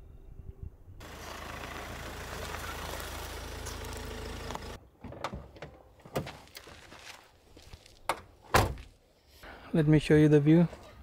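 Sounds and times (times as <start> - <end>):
car engine and tyres: 1.0 - 5.0
footstep on gravel: 6.2 - 8.1.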